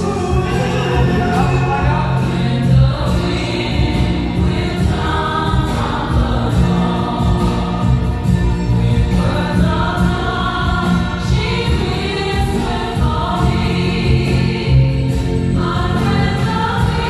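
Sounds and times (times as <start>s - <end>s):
loud dance music with vocals: 0.0s - 4.6s.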